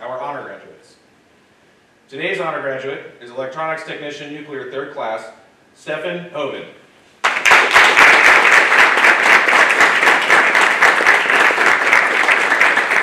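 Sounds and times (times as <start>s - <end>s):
audience clapping: 7.2s - 13.0s.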